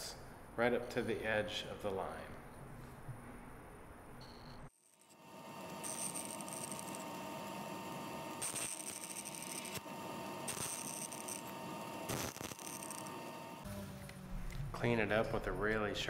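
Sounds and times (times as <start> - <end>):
bandsaw humming: 4.8 - 14.2
saw blade cutting wood: 8.4 - 13.5.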